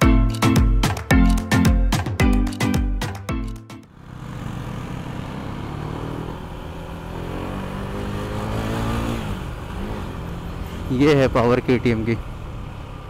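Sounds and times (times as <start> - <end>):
motorcycle engine accelerating: 3.8 - 13.0.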